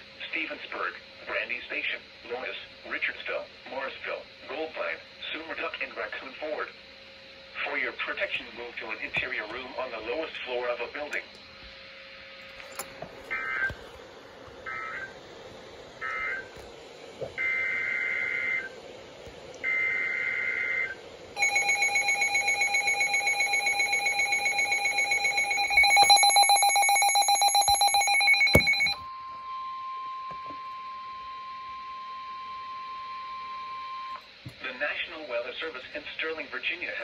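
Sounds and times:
steady alert tone: 0:21.4 - 0:29.0
pulsing two-tone attention signal: 0:21.4 - 0:34.2.

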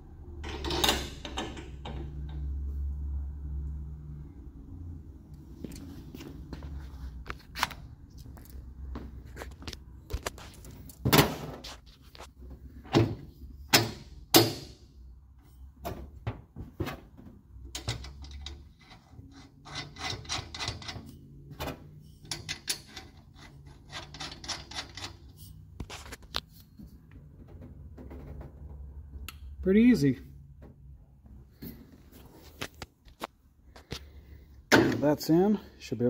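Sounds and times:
metal parts knocking and clanking: 0:00.4 - 0:02.5, 0:15.8 - 0:25.3.

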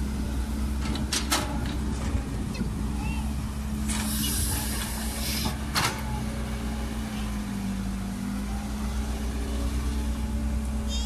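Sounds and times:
excavator diesel engine running: 0:00.0 - 0:11.0
hiss bursts: 0:03.9 - 0:05.6.

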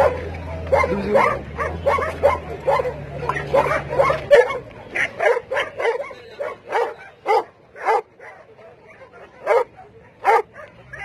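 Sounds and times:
dog barking: 0:00.0 - 0:11.0.

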